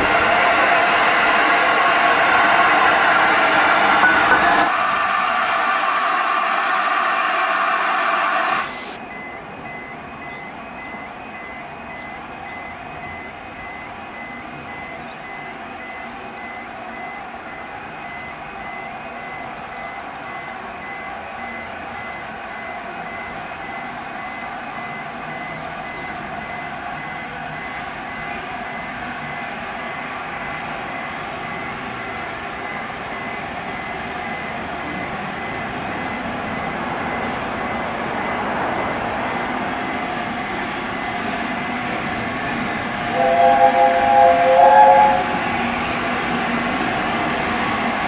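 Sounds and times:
locomotive steam hiss: 0:04.6 - 0:09.0
level crossing beeps: 0:43.1 - 0:45.7.

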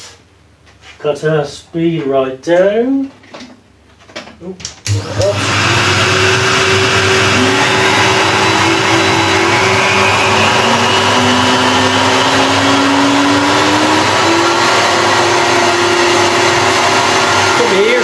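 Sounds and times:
router whining: 0:04.9 - 0:18.0
motor tone rising in pitch: 0:05.2 - 0:17.1.

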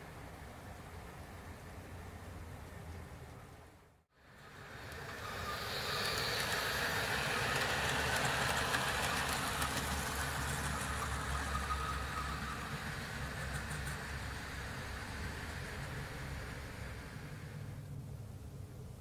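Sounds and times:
model train rumbling: 0:04.2 - 0:18.1
light ticks from rails: 0:04.3 - 0:17.7.

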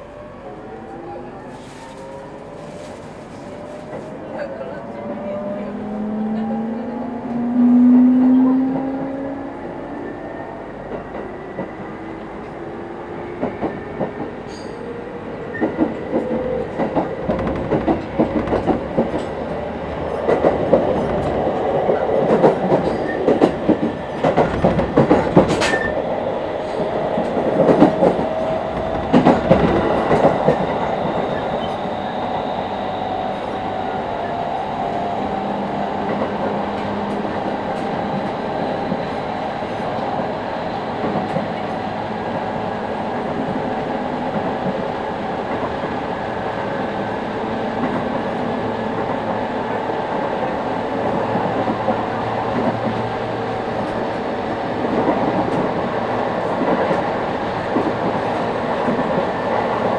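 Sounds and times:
wheels clacking over rail joints: 0:15.5 - 0:26.0.

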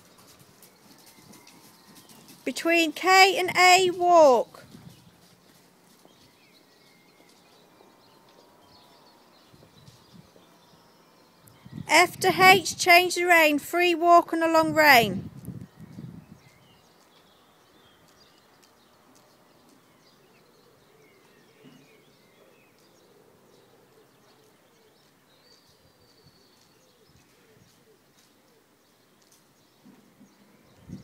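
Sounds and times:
faint birdsong: 0:00.0 - 0:31.0.

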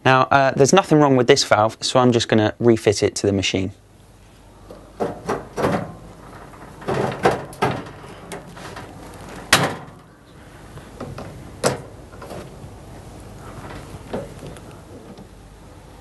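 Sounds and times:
plastic knocks and scrapes: 0:13.4 - 0:15.3.

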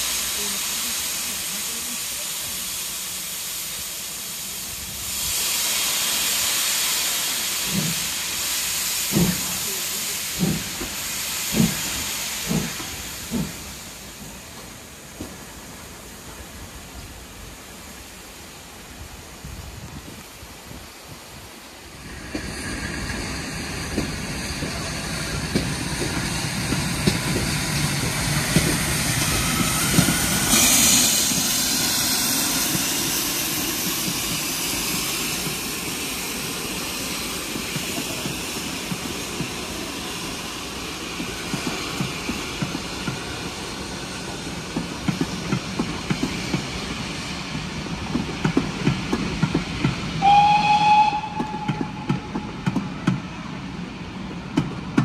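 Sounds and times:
steam hissing: 0:00.0 - 0:55.0
steam locomotives passing: 0:00.0 - 0:55.0
train wheels clattering over rail joints: 0:09.0 - 0:09.6, 0:10.3 - 0:13.7, 0:47.5 - 0:50.1, 0:51.0 - 0:53.3.

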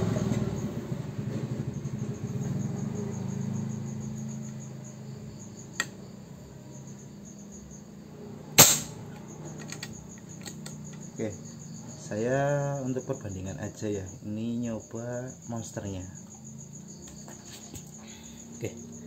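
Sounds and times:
crickets chirping: 0:00.0 - 0:19.0
suppressed air rifle shot: 0:08.6 - 0:09.1.

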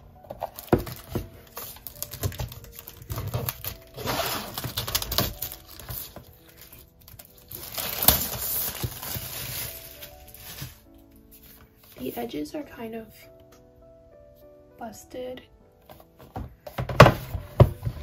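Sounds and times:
plastic wrap crinkling: 0:00.2 - 0:12.3.

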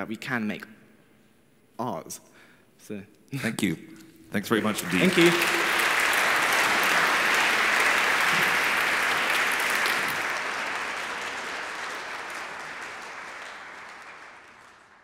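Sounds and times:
audience applauding: 0:04.4 - 0:15.0.

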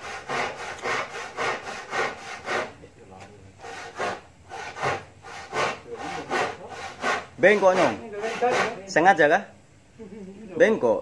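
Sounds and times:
hand saw cutting wood: 0:00.0 - 0:02.8, 0:03.6 - 0:08.8.

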